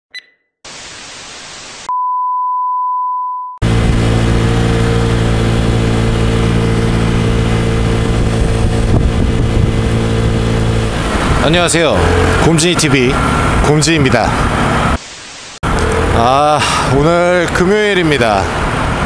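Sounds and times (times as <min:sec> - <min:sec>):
high test tone beep: 0:00.1 - 0:00.5, 0:01.9 - 0:03.6
static hiss: 0:00.7 - 0:01.9, 0:15.0 - 0:15.6
scooter engine cruising: 0:03.6 - 0:15.0, 0:15.6 - 0:19.0
wind rush: 0:06.9 - 0:12.4.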